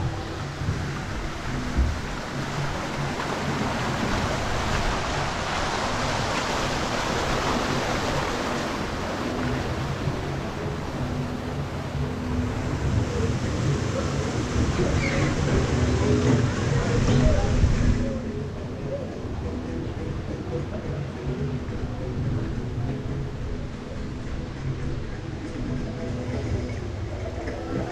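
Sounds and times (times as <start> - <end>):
water rushing and splashing: 0.0 - 27.9
water cascade spilling: 0.2 - 9.9.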